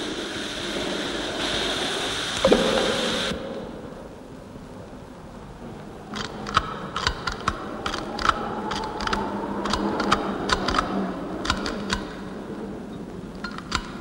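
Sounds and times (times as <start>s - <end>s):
dry irregular clicks and taps: 6.1s - 12.2s, 13.3s - 14.0s.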